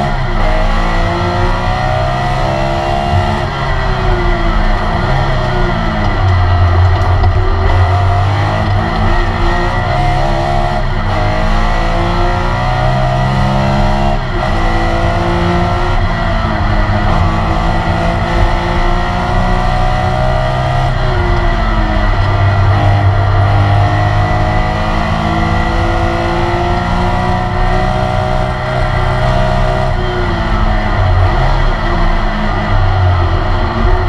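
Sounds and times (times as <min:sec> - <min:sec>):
race car engine at full throttle: 0:00.0 - 0:34.0.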